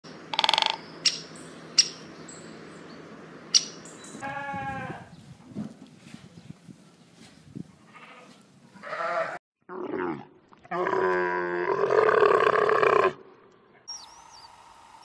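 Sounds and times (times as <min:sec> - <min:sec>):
sharp high chirps: 0:00.4 - 0:04.2, 0:13.9 - 0:14.5
sheep bleating: 0:04.2 - 0:05.1, 0:07.9 - 0:09.4.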